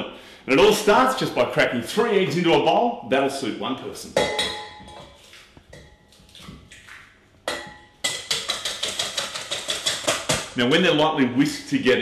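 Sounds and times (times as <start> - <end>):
eggs being cracked: 6.3 - 10.6
whisk clicking in metal bowl: 7.5 - 10.6.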